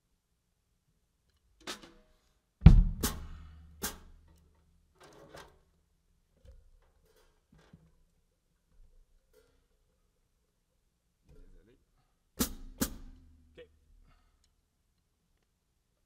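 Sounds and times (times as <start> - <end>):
drum kit struck with sticks: 1.6 - 4.4, 12.4 - 13.5.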